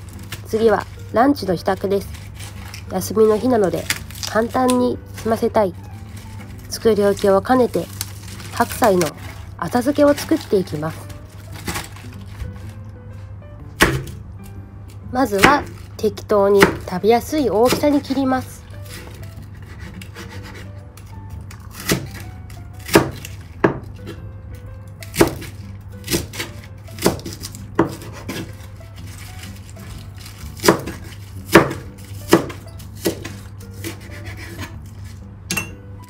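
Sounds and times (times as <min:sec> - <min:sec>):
knife chopping on cutting board: 0:13.8 - 0:14.2, 0:16.6 - 0:16.9, 0:17.6 - 0:18.2, 0:18.9 - 0:20.7, 0:21.7 - 0:22.2, 0:22.8 - 0:24.2, 0:25.1 - 0:28.7, 0:30.5 - 0:34.9.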